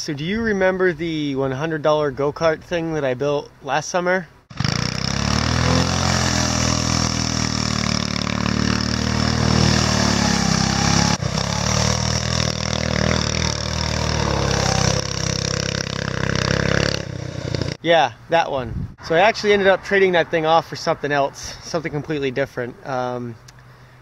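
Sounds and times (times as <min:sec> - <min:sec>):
go-kart engine running: 0:04.5 - 0:17.8.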